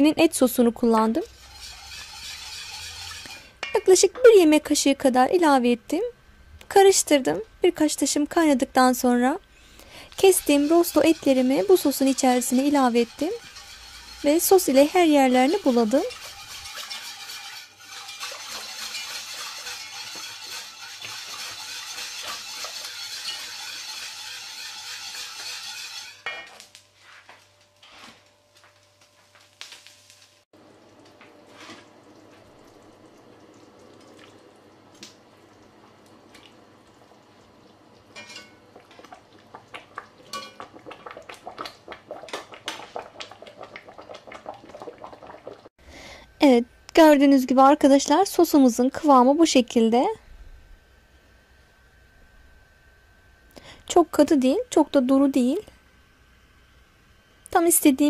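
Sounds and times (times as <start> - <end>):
spoon stirring gravy in a pot: 1.3 - 3.6, 10.1 - 26.2, 38.1 - 45.6
gravy bubbles popping: 36.4 - 45.7.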